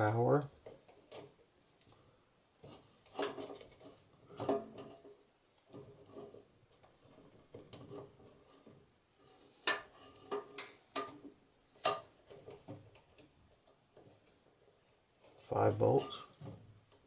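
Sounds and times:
wires rustling: 0.0 - 17.0.

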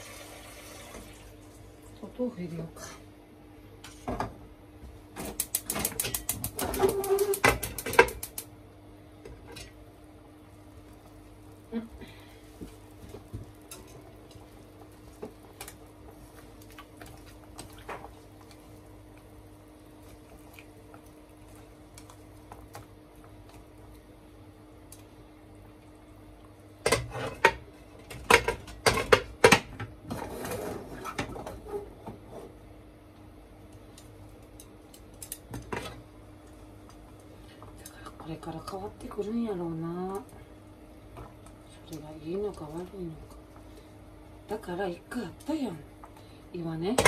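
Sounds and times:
low steady hum: 0.0 - 47.0
pots and dishes clattering: 26.8 - 31.9.

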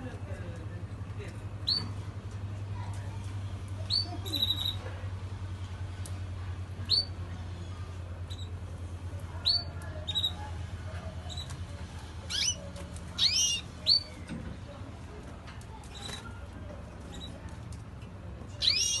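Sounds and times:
finches chirping: 3.9 - 4.8, 6.8 - 8.5, 12.3 - 12.6, 13.2 - 14.2, 18.6 - 19.0.

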